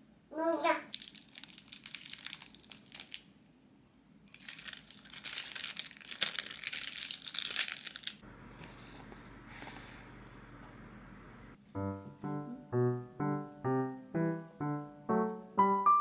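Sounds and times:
plastic film crinkling: 0:00.9 - 0:03.3, 0:04.3 - 0:08.2.

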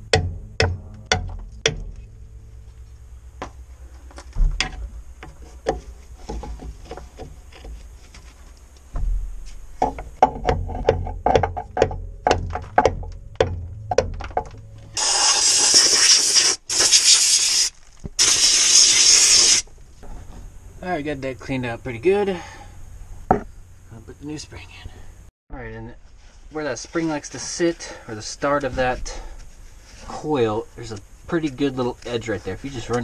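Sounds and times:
aerosol spray can hissing: 0:15.0 - 0:19.7.

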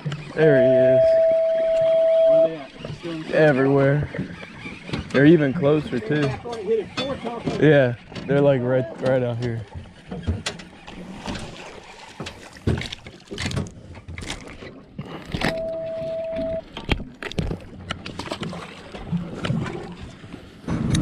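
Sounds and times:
steady beep: 0:00.5 - 0:02.7, 0:15.5 - 0:16.6
knocks and clatter on boat: 0:02.6 - 0:21.0.

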